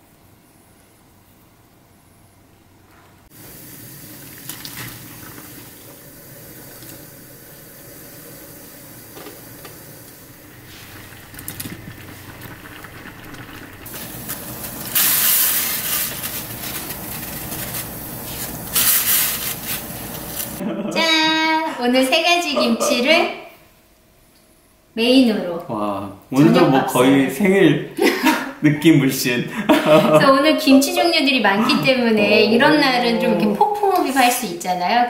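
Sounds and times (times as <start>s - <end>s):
hiss of cooking water: 3.2s - 20.7s.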